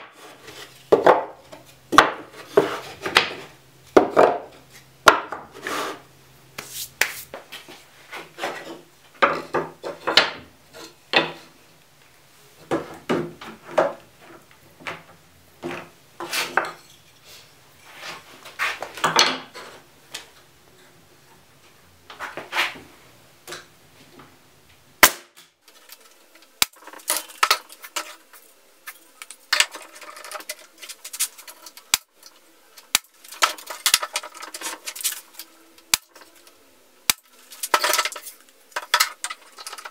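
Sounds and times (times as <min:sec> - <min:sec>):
wooden strips clattering: 0:25.7 - 0:32.1, 0:32.8 - 0:36.5, 0:37.1 - 0:39.9.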